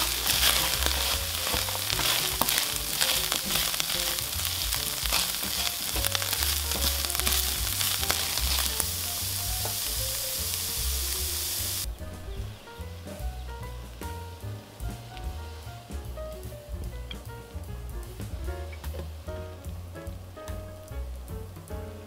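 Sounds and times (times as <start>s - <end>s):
spatula stirring in pan: 0.0s - 10.6s
food sizzling in frying pan: 0.0s - 11.9s.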